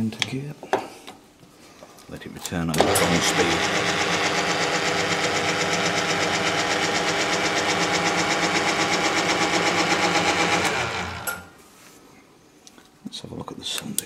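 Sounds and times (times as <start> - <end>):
boring bar motor droning: 2.8 - 11.6.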